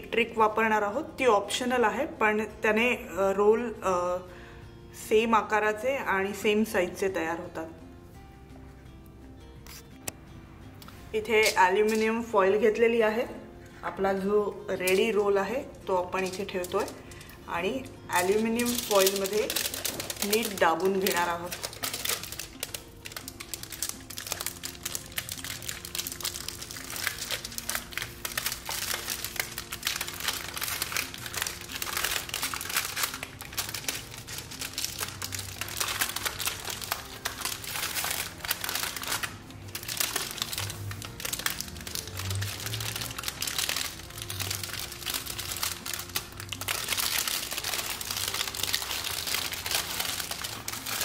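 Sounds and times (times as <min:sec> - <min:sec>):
aluminium foil crinkling: 0:11.4 - 0:12.2, 0:16.0 - 0:17.4, 0:18.1 - 0:51.0.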